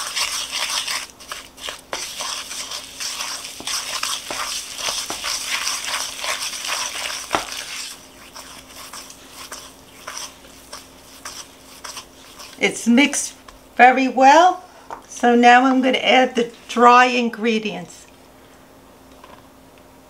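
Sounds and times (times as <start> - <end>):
wooden spoon scraping a bowl: 0.0 - 13.6.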